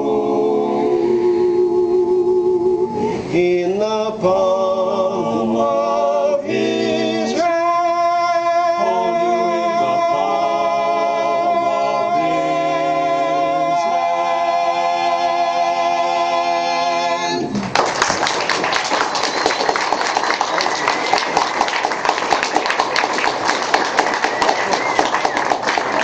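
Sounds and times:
men's voices singing unaccompanied: 3.3s - 17.5s
audience applause: 17.6s - 26.0s.

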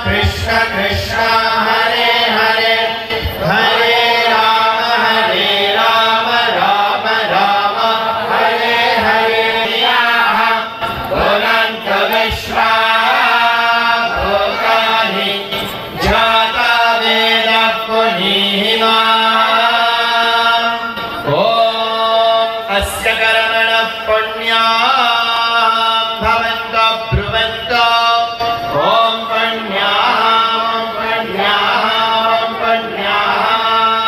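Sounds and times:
voices chanting a mantra: 0.0s - 34.0s.

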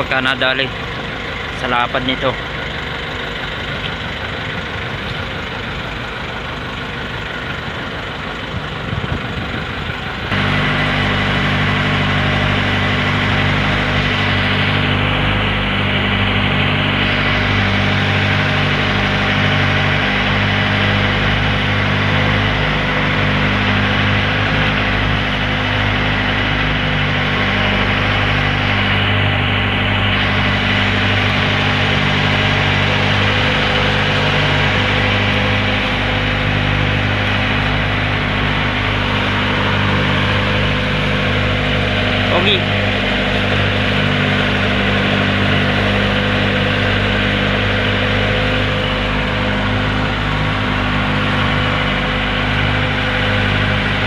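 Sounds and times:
boat engine running: 0.0s - 54.0s
wind noise: 8.5s - 10.4s.

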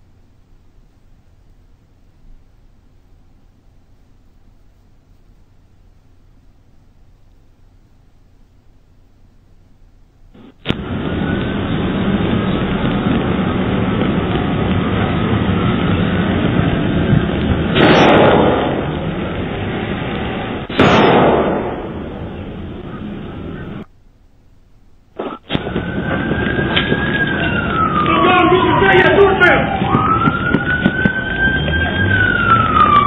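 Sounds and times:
steady background hiss: 0.0s - 29.8s
gunshots: 17.7s - 19.2s, 20.6s - 22.4s.

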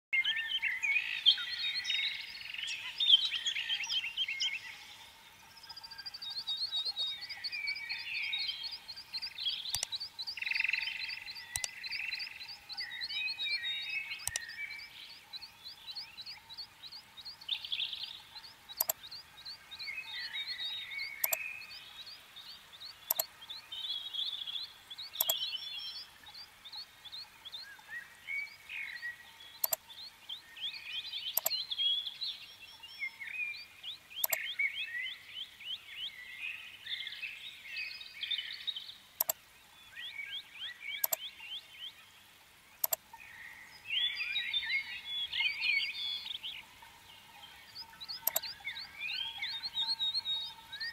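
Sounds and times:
sharp clicks: 9.6s - 10.5s, 11.4s - 12.2s, 14.2s - 14.6s, 18.7s - 19.1s, 21.2s - 21.5s, 23.0s - 23.3s, 25.1s - 25.5s, 29.6s - 29.8s, 31.4s - 31.6s, 34.2s - 34.4s, 39.2s - 39.4s, 41.0s - 41.2s, 42.8s - 43.0s, 48.1s - 48.5s.

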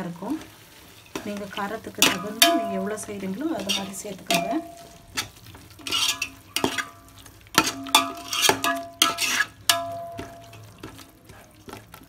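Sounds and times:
masala sizzling: 0.0s - 12.0s
spoon stirring in metal pot: 1.0s - 12.0s
spoon knocking ringing pot: 2.0s - 3.0s, 4.2s - 5.0s, 7.6s - 10.9s.

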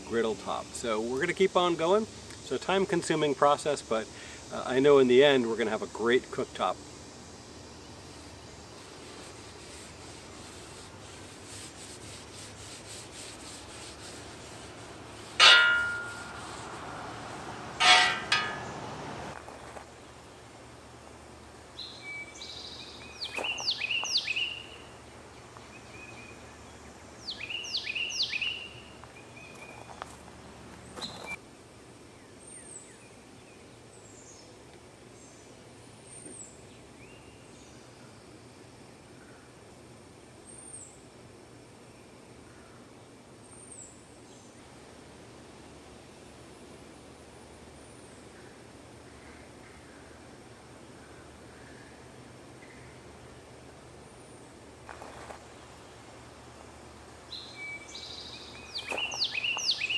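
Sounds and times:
outdoor background noise: 0.0s - 59.9s
birds singing: 21.8s - 30.1s, 57.3s - 59.9s.

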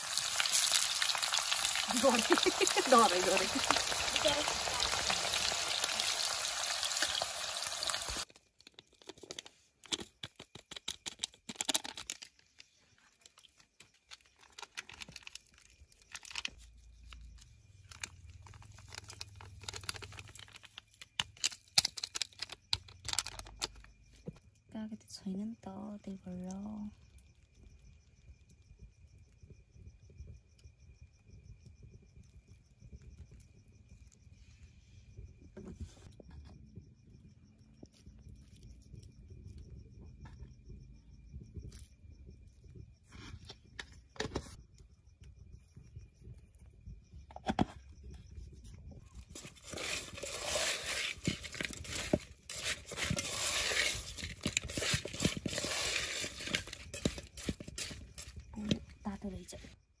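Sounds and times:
yam slices clattering in metal pot: 49.4s - 58.9s.

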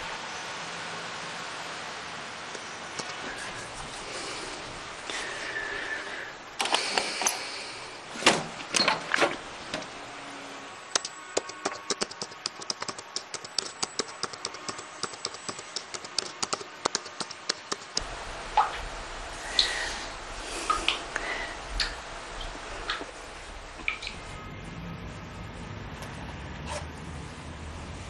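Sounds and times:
computer keyboard typing: 11.0s - 18.0s
knocks and clicks: 11.0s - 18.0s
low hum: 18.0s - 28.0s.

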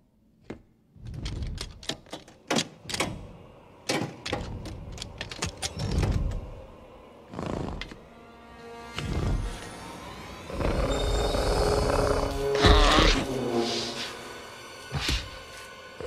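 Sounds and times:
door latch clicking and rattling: 1.1s - 3.3s, 3.9s - 6.4s.

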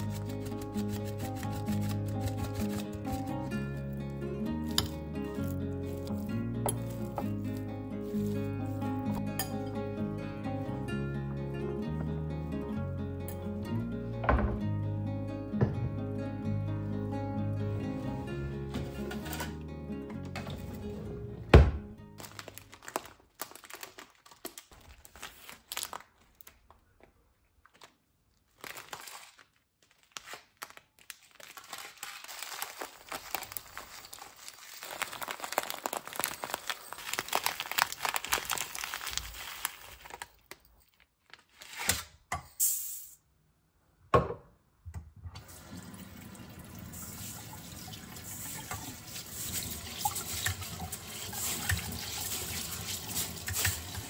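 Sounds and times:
plastic bag rustling: 0.0s - 3.5s, 4.6s - 9.2s, 22.2s - 26.8s, 27.6s - 41.7s, 48.2s - 54.0s
tap water running: 45.4s - 54.0s
rice pouring into cup: 46.0s - 54.0s.

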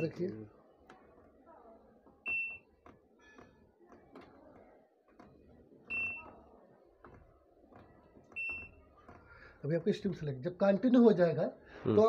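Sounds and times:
washing machine high beeps: 2.2s - 3.4s, 5.9s - 6.4s, 8.3s - 8.8s.

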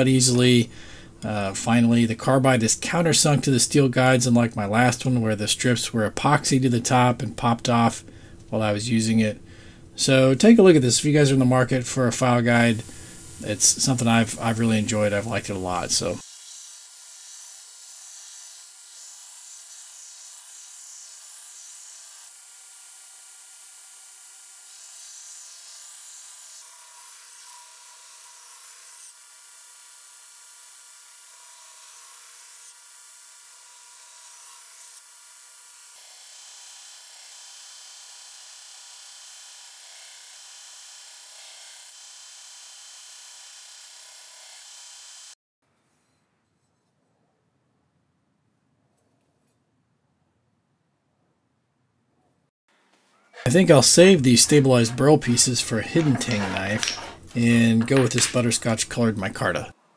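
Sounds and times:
belt grinder grinding steel: 53.4s - 59.1s.

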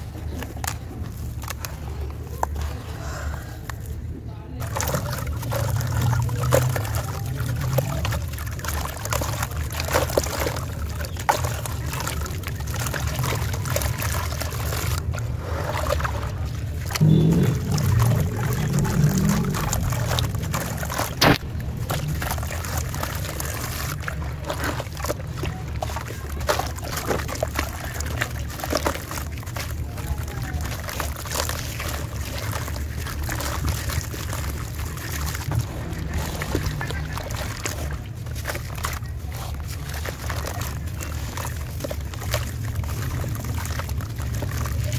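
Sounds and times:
hand sloshing water: 0.0s - 44.9s
steady low rumble: 0.0s - 44.9s
wet slabs crumbling into water: 4.6s - 44.9s.

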